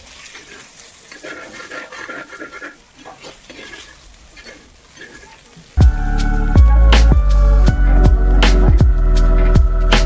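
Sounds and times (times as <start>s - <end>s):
oil sizzling: 0.0s - 10.0s
metal ladle scraping pan: 0.1s - 5.4s.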